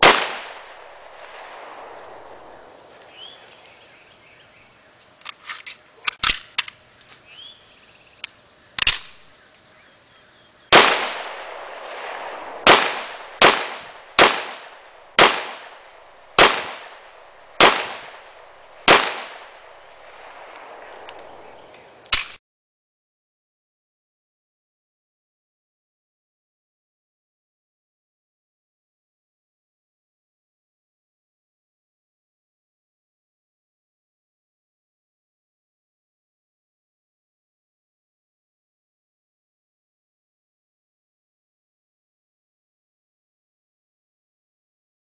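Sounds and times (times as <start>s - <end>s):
pistol shots with echo: 0.0s - 2.9s, 10.7s - 22.3s
faint gunshot cracks: 0.0s - 3.2s, 10.7s - 22.4s.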